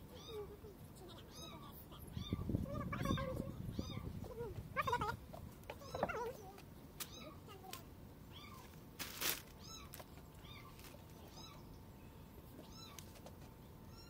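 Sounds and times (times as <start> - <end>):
rustling: 8.4 - 11.6.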